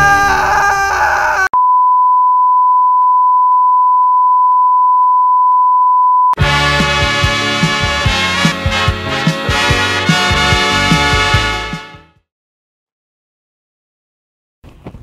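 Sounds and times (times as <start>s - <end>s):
steady high test tone beep: 1.6s - 6.4s
brass-led swing music: 6.4s - 12.2s.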